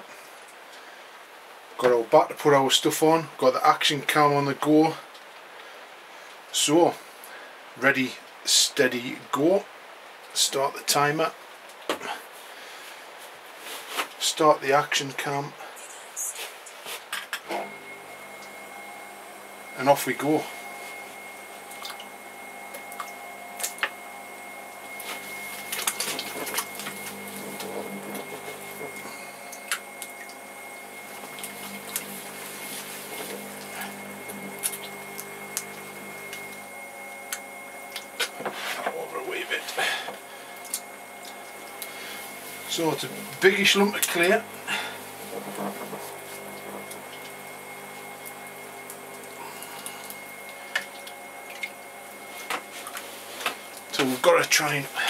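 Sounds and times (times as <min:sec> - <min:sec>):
potter's wheel motor whine: 0:17.4 - 0:55.0
water splashing and dripping: 0:21.7 - 0:22.1, 0:25.4 - 0:27.2, 0:34.6 - 0:36.6, 0:40.6 - 0:41.9, 0:48.2 - 0:53.9.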